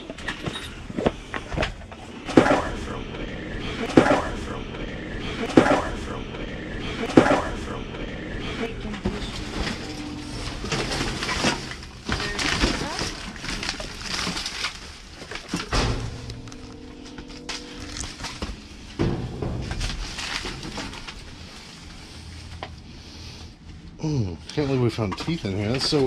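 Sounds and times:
trash bags rustling and crackling: 0:09.1 - 0:22.6.

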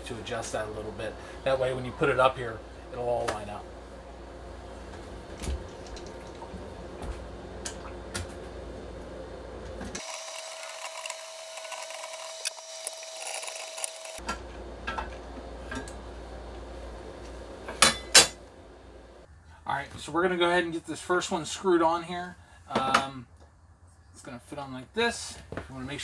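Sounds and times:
screwdriver clicking and scraping: 0:10.0 - 0:14.2.

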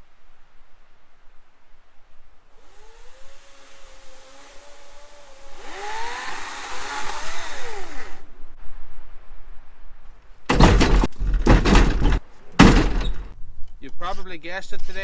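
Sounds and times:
chainsaw revving: 0:02.6 - 0:08.3.

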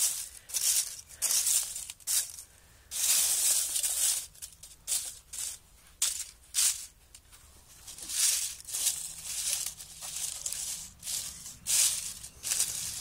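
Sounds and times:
dry leaves crackling and rustling: 0:00.0 - 0:07.0, 0:07.7 - 0:13.0.

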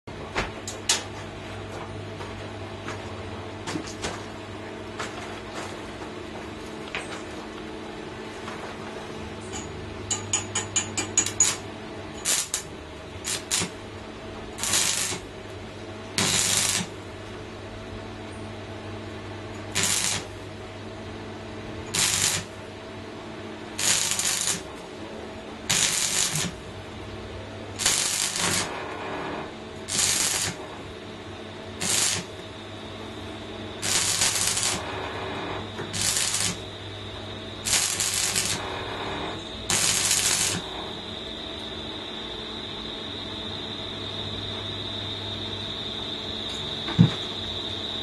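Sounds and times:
steady low hum: 0:00.1 - 0:48.0
arc welding bursts: 0:12.2 - 0:13.8, 0:14.5 - 0:15.4, 0:16.2 - 0:17.1, 0:19.7 - 0:20.4, 0:21.9 - 0:22.6, 0:23.8 - 0:24.7, 0:25.7 - 0:26.7, 0:27.7 - 0:30.8, 0:31.7 - 0:32.5, 0:33.8 - 0:36.8, 0:37.5 - 0:40.9.

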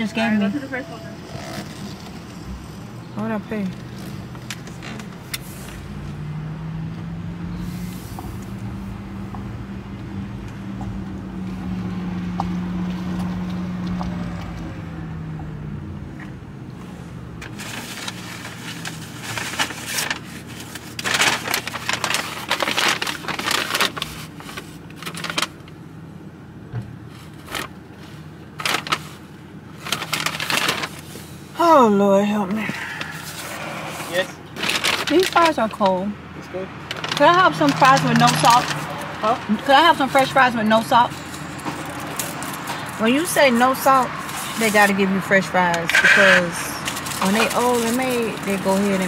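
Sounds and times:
car driving low hum: 0:00.0 - 0:49.0
paper bag crinkling: 0:17.4 - 0:25.7, 0:28.6 - 0:31.1, 0:32.8 - 0:35.8, 0:36.9 - 0:39.0.

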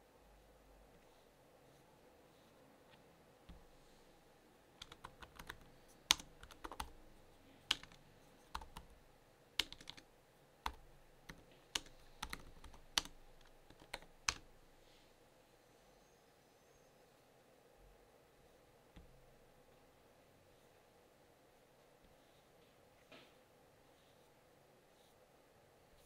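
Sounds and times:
laptop keyboard typing: 0:04.8 - 0:09.0, 0:09.6 - 0:14.6.

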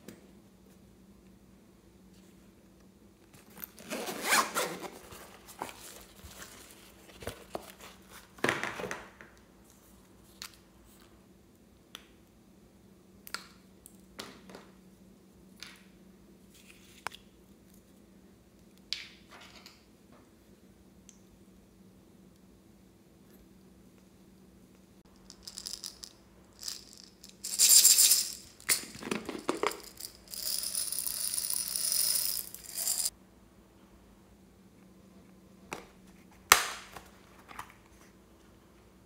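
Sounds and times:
zipper pulled: 0:03.7 - 0:05.2.

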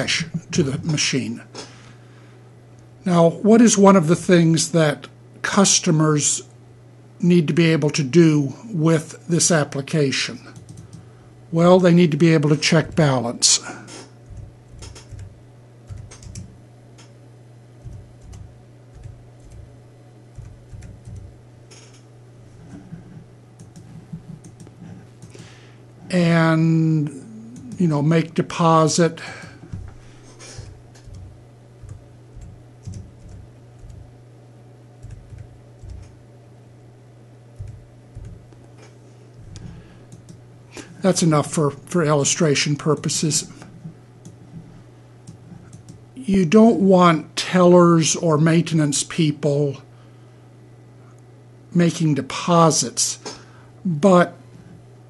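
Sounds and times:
steady low hum: 0:00.0 - 0:55.0
keyboard keystrokes clicking: 0:10.6 - 0:11.0, 0:14.2 - 0:17.1, 0:17.8 - 0:19.7, 0:20.3 - 0:22.0, 0:30.6 - 0:34.0, 0:35.0 - 0:36.2, 0:37.6 - 0:38.4.

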